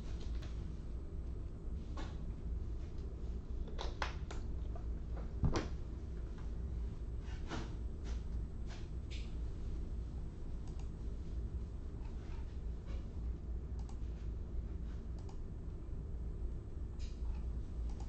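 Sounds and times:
steady low hum: 0:00.0 - 0:18.0
light clicks and taps: 0:17.0 - 0:18.0.

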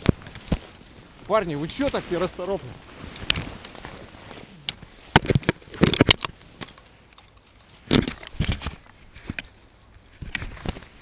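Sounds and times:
stiff stems scraping: 0:00.0 - 0:11.0
footsteps crunching through snow: 0:00.1 - 0:05.2.

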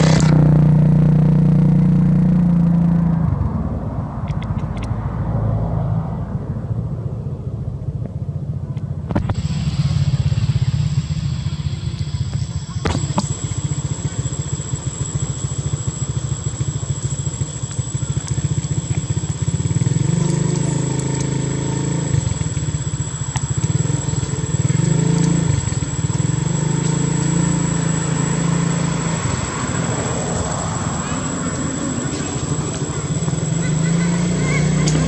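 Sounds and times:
small engine idling: 0:00.0 - 0:03.6, 0:07.3 - 0:35.0
thin steady high tone: 0:09.4 - 0:35.0.

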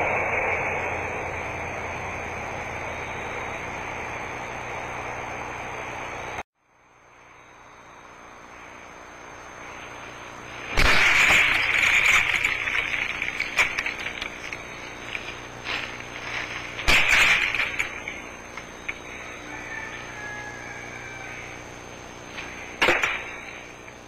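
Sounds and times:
hissy field recording noise: 0:00.0 - 0:24.0
harsh crackling noise: 0:09.8 - 0:19.2.

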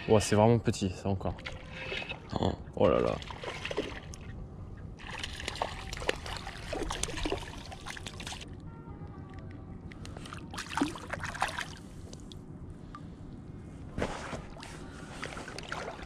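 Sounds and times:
water splashing and dripping: 0:02.9 - 0:04.3, 0:05.0 - 0:08.5, 0:09.9 - 0:13.0, 0:14.5 - 0:16.0
fish splashing into water: 0:05.0 - 0:08.4, 0:10.3 - 0:12.3.

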